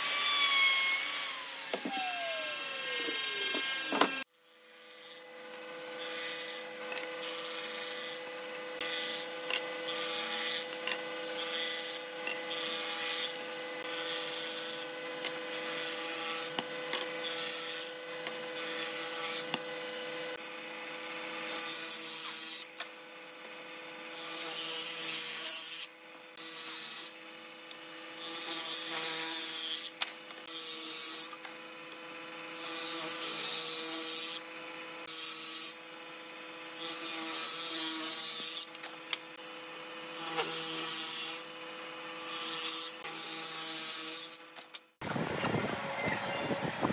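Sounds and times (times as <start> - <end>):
hand tool scraping wood: 40.2 - 41.5.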